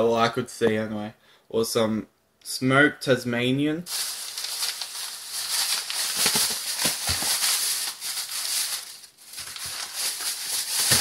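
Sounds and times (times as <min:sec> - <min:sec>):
rustling and scraping handling noise: 0:03.9 - 0:11.0.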